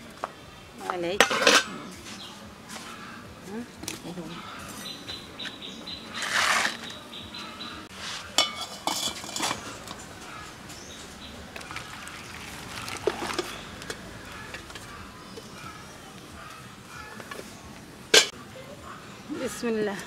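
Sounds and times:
metal tongs clinking on pot: 1.2 - 1.8, 8.4 - 10.0, 18.1 - 18.3.

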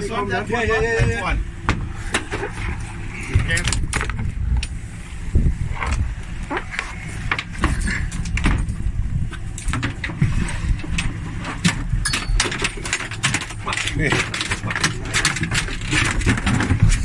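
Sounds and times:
boat engine rumble: 0.0 - 17.0
knocks and clattering on deck: 7.3 - 8.8, 9.6 - 17.0.

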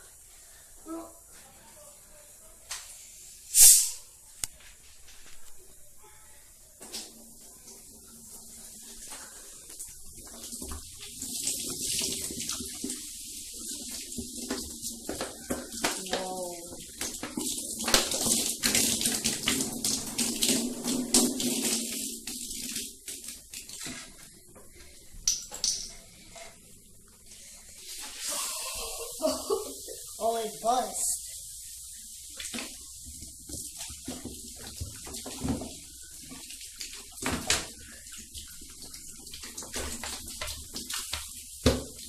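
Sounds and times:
bottle hiss: 3.0 - 4.1
soda splashing and fizzing: 7.0 - 42.0.

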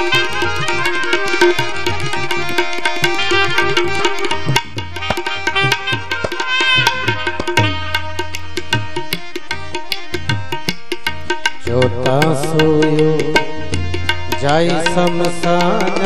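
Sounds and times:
sustained melody notes: 0.0 - 10.6
hand drum fast rhythm: 0.0 - 16.0.

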